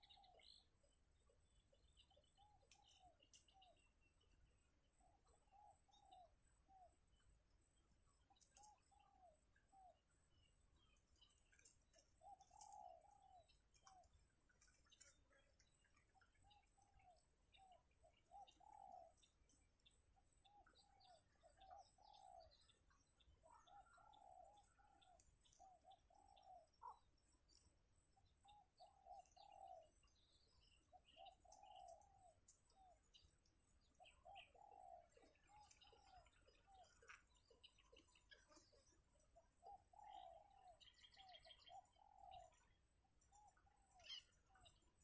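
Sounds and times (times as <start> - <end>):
bird calls: 0.0 - 0.7, 11.2 - 19.3, 20.4 - 27.2, 28.2 - 33.3, 33.9 - 45.0.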